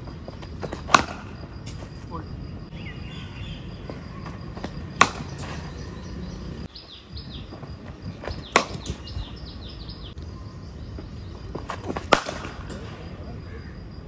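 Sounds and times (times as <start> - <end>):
birds chirping: 0.0 - 14.0
cricket bat striking ball: 0.6 - 1.5, 4.2 - 5.9, 8.2 - 9.2, 11.6 - 12.9.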